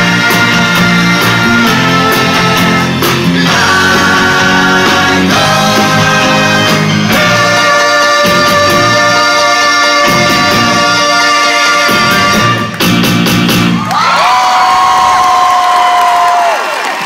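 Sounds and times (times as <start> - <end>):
men singing in close harmony: 0.0 - 12.6
backing band: 0.0 - 16.9.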